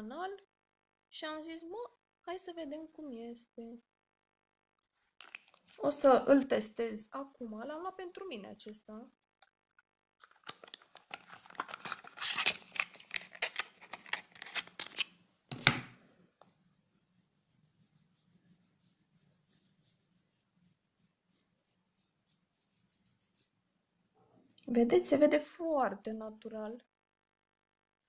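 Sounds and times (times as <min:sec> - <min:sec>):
packaging crackling and rustling: 0:05.2 - 0:05.9, 0:10.2 - 0:15.1
light rhythmic rubbing: 0:16.6 - 0:23.6.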